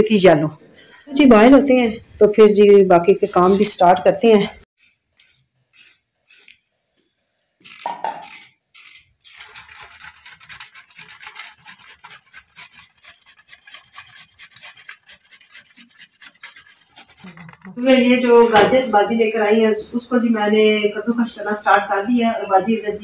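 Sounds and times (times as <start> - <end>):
carrots grated on hand grater: 7.7 - 17.8.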